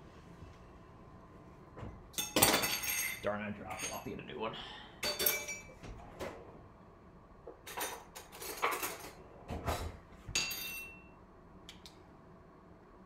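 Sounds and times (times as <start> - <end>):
dishes and utensils clinking: 2.1 - 4.2, 5.0 - 5.8, 7.6 - 11.1.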